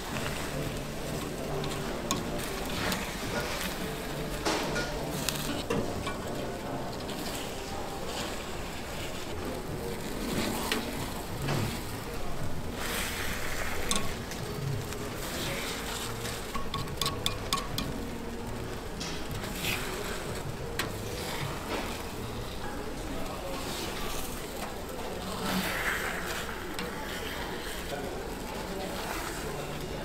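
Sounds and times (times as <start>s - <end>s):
batter sizzling on a griddle: 0.0s - 30.0s
metal picks scraping a pan: 0.1s - 9.4s, 12.8s - 18.0s.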